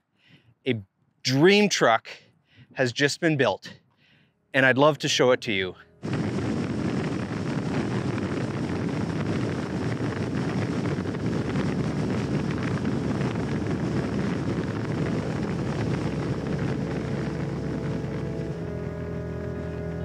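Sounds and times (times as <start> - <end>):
moving vehicle rumble: 5.4 - 20.0
wind buffeting microphone: 6.0 - 20.0.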